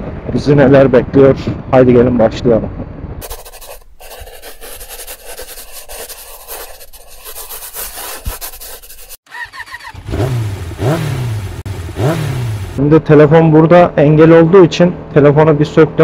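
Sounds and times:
rubbing on microphone: 3.2s - 9.2s
scooter engine revving: 9.2s - 12.8s.

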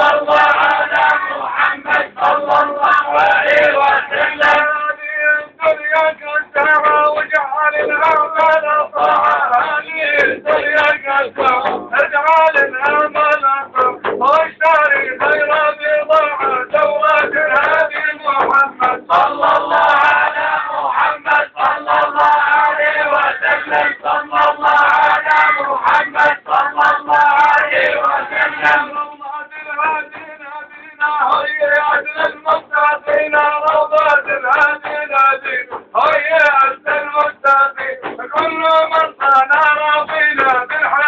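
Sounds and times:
frame drum beating: 0.0s - 4.8s, 6.6s - 29.2s
men singing devotional chant: 0.0s - 41.0s.

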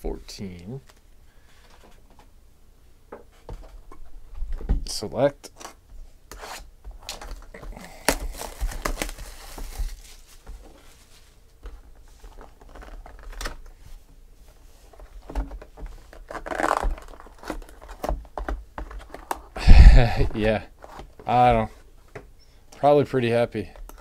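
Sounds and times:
cardboard rustling: 6.9s - 13.6s.

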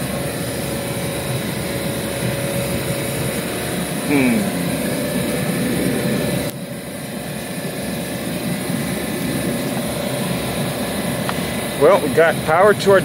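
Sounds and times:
refrigeration units humming: 0.0s - 13.0s.

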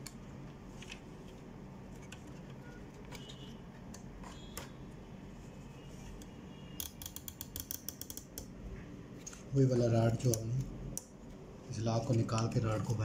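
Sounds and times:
printer parts clicking: 6.8s - 8.5s.

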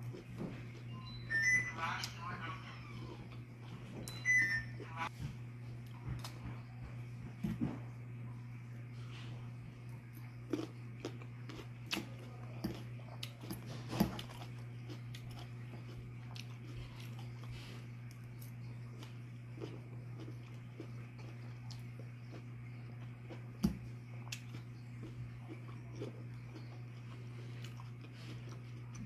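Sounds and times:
chewing and crunching food: 0.0s - 1.1s, 4.8s - 29.0s
steady low hum: 0.0s - 29.0s.

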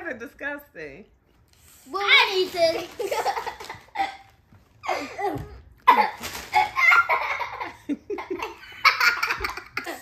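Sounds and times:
plastic bag crinkling: 2.0s - 4.8s, 5.8s - 7.2s
children laughing: 2.6s - 10.0s.

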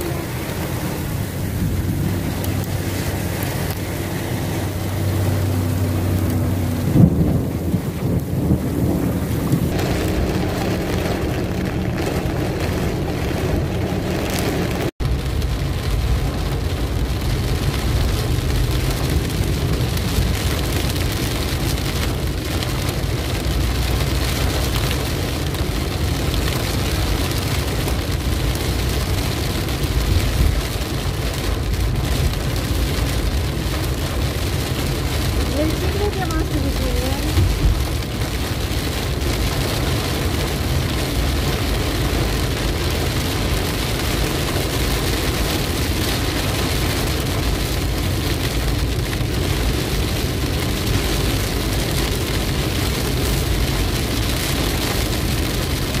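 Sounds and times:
car tyres and engine rumble: 0.0s - 56.0s
heavy rain pouring: 0.0s - 56.0s
rain hitting windshield: 0.0s - 56.0s
loud thump: 6.9s - 8.7s.

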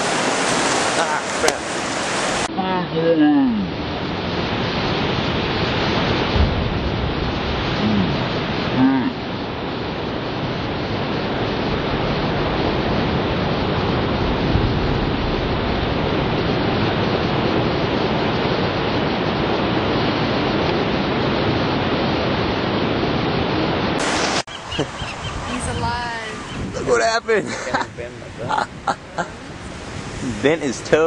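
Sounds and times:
ocean surf breaking in cave: 0.0s - 31.0s.

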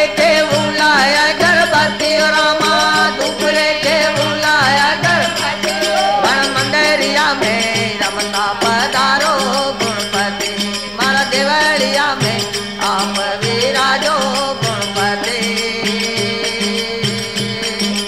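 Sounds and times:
rattling percussion: 0.0s - 18.0s.

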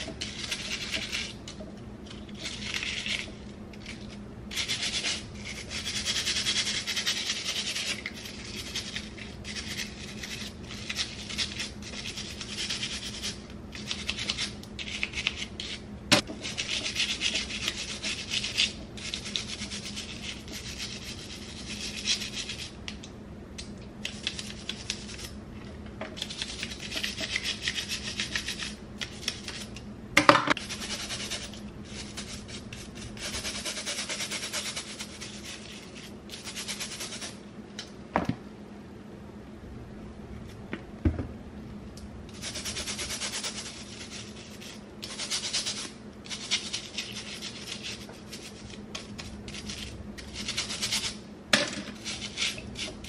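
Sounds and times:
scrub brush rasping strokes: 0.0s - 1.4s, 2.1s - 15.8s, 16.4s - 22.8s, 30.6s - 37.4s, 42.3s - 51.2s, 52.0s - 53.0s.

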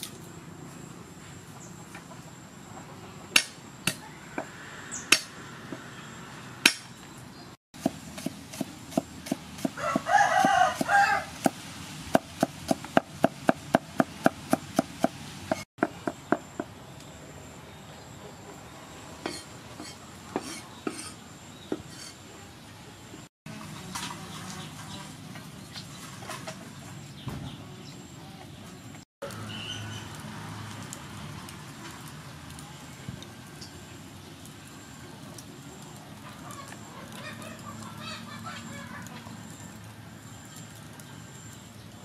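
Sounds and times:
cleaver chopping on wooden board: 6.7s - 6.9s, 7.8s - 16.7s
rooster crowing: 9.7s - 11.4s.

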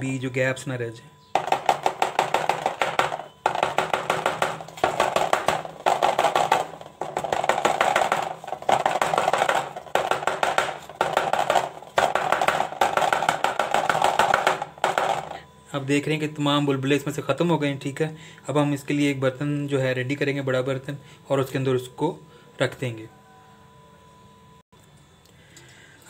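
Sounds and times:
cake pan tapping: 1.4s - 15.4s.

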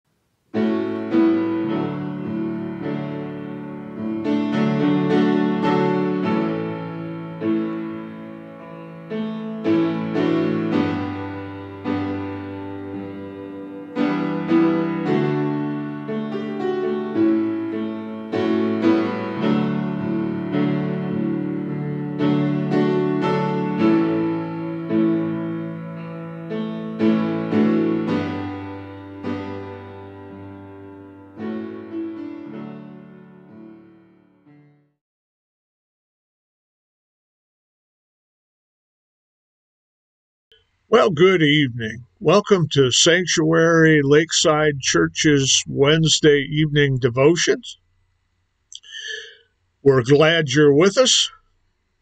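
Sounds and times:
piano playing slow chords: 0.5s - 34.9s.

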